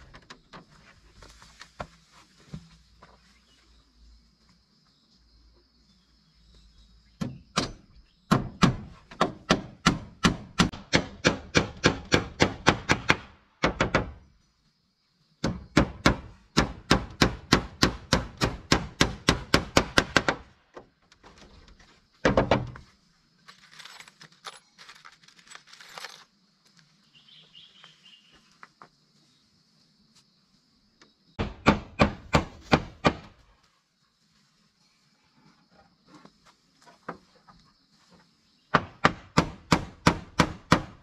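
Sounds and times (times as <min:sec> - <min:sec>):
hammer nailing wooden boards: 0:07.2 - 0:14.2, 0:15.4 - 0:20.5, 0:31.4 - 0:33.3, 0:38.7 - 0:41.0.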